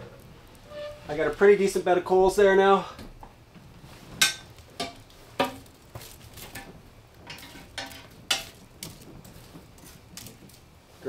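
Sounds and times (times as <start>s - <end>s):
metal poker clinking in stove: 4.2s - 10.7s.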